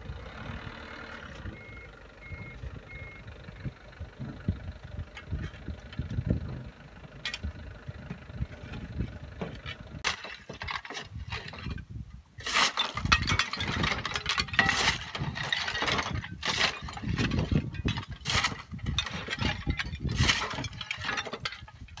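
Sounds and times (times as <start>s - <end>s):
shovel scraping rubble on metal: 8.6s - 22.0s.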